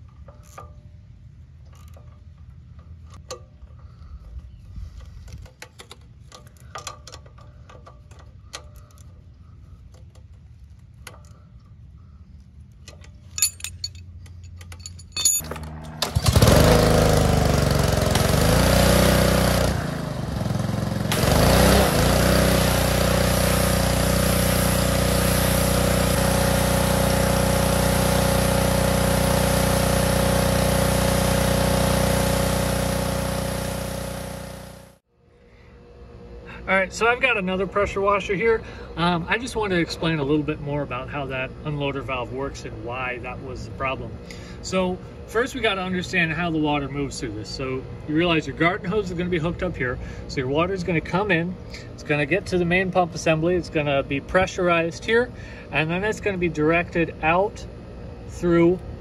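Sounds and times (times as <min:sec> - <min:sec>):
wrench metal clicks: 0:12.6 - 0:15.6
pressure washer engine running: 0:15.5 - 0:35.0
high-pressure spray hissing: 0:22.6 - 0:30.4.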